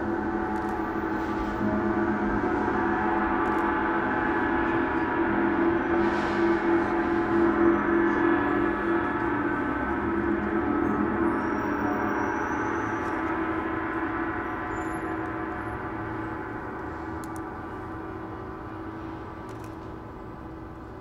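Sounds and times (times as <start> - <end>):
large gong shimmering: 0.0 - 20.8.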